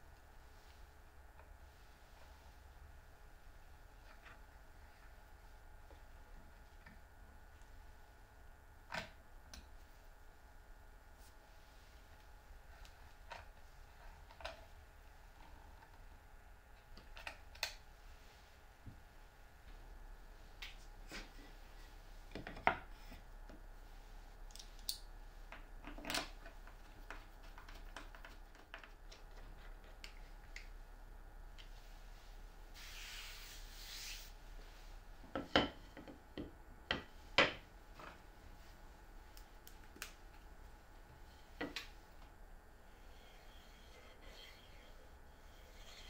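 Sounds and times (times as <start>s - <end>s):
short scraping hiss: 32.8s - 34.3s.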